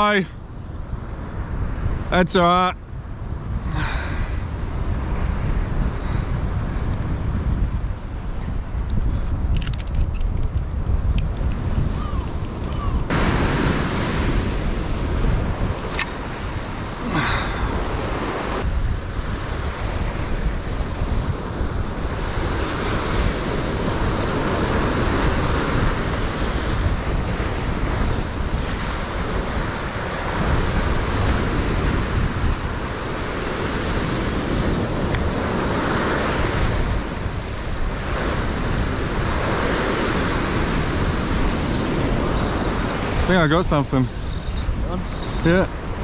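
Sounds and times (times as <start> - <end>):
ocean waves on rocky shore: 0.0 - 8.8, 11.0 - 46.0
wind rumbling on microphone: 0.0 - 46.0.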